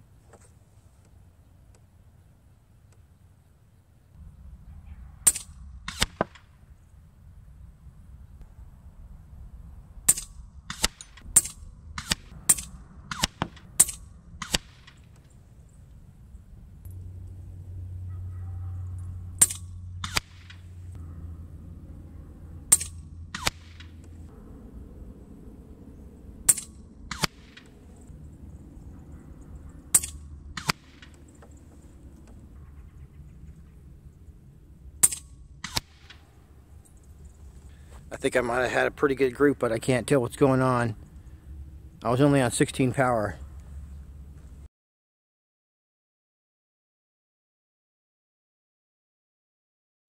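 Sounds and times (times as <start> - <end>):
air rifle shots: 5.2 - 6.6, 10.0 - 15.2, 19.4 - 20.9, 22.7 - 24.2, 26.4 - 27.9, 29.8 - 32.5, 35.0 - 36.4.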